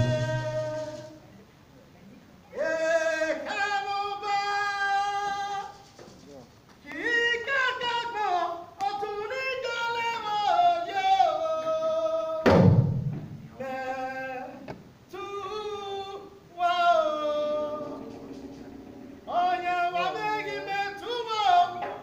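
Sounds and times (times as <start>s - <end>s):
person singing: 0.0s - 1.2s, 13.6s - 18.6s
loud low thump: 12.4s - 13.5s.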